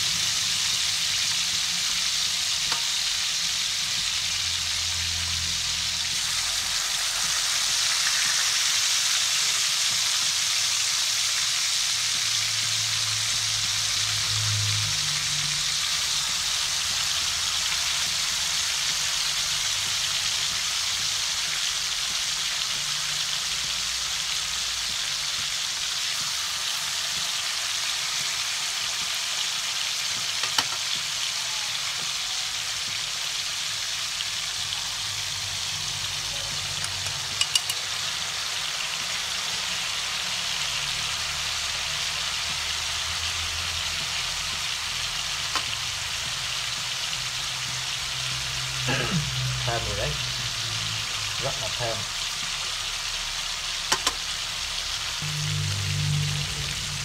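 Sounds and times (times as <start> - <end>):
fish frying in hot oil: 0.0 - 57.0.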